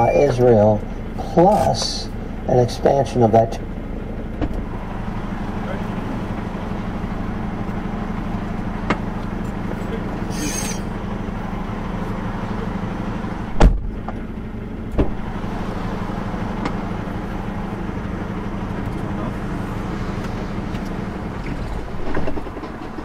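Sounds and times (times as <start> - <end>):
truck engine droning: 0.0 - 23.0.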